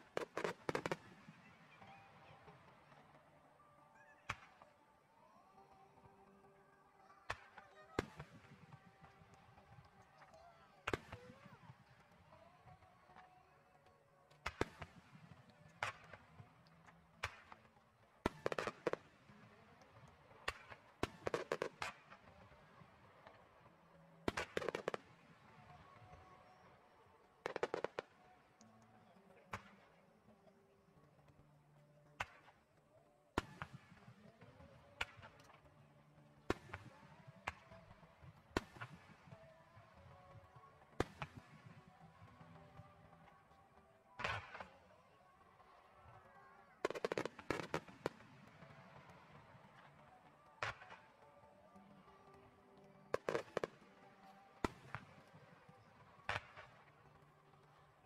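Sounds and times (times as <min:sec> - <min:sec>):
firework cracks: 0:00.0 - 0:03.1, 0:07.3 - 0:13.3, 0:14.4 - 0:23.5, 0:24.2 - 0:26.1, 0:27.4 - 0:28.6, 0:36.5 - 0:39.5, 0:46.8 - 0:49.9, 0:53.1 - 0:57.0
crackling firework reports: 0:00.0 - 0:03.2, 0:14.3 - 0:30.0, 0:36.4 - 0:52.4, 0:53.0 - 0:58.0.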